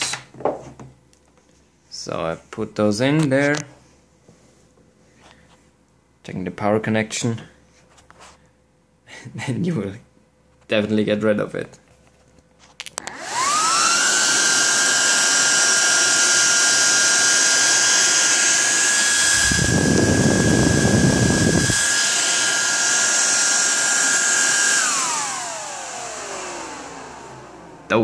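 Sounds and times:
fans whining: 12.9s - 28.0s.

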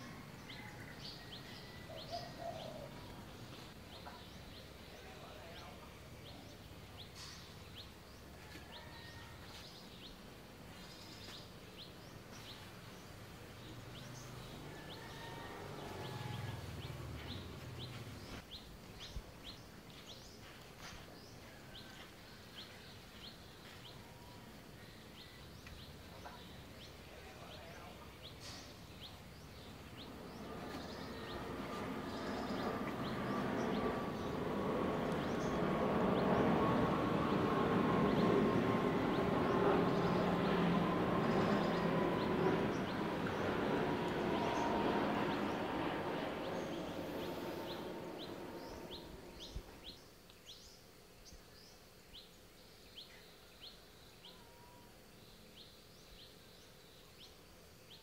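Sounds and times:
small birds chirping: 0.0s - 58.0s
jet airliner engine noise: 25.7s - 49.9s.

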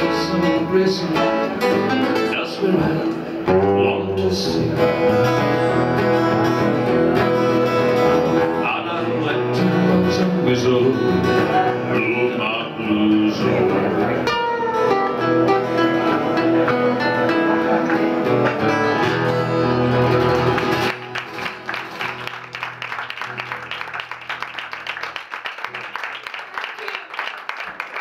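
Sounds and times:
acoustic band playing: 0.0s - 26.2s
audience applauding: 19.9s - 28.0s.

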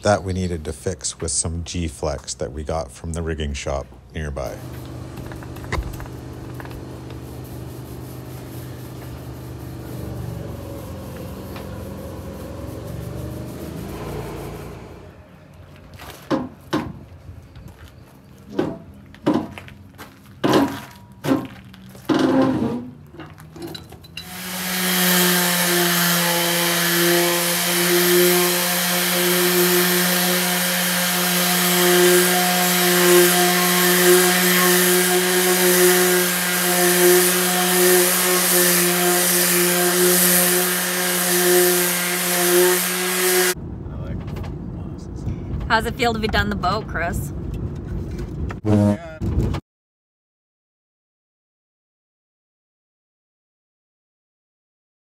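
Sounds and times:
orbital sander running: 4.6s - 15.0s, 24.2s - 43.6s
sharp knocks: 20.4s - 21.5s.

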